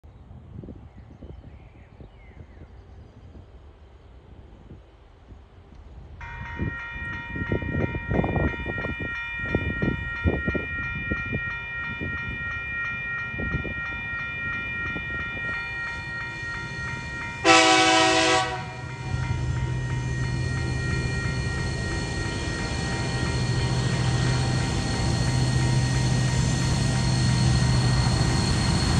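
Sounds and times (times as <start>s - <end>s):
locomotive engine drone: 5.6s - 28.9s
level crossing bell ringing: 6.2s - 27.0s
locomotive horn blast: 17.4s - 19.3s.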